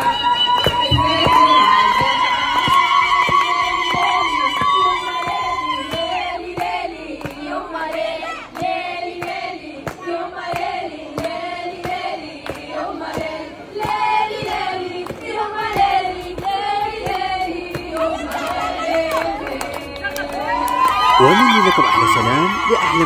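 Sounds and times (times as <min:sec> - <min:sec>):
woman singing into a microphone: 0:00.0 - 0:10.8, 0:14.3 - 0:20.8
crowd singing along: 0:00.0 - 0:21.0
crowd clapping in time: 0:00.0 - 0:23.0.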